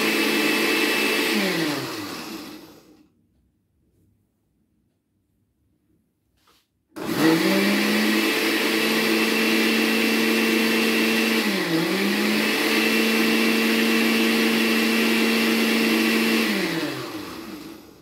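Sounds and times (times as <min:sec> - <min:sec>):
blender motor running: 0:00.0 - 0:03.0, 0:07.0 - 0:18.0.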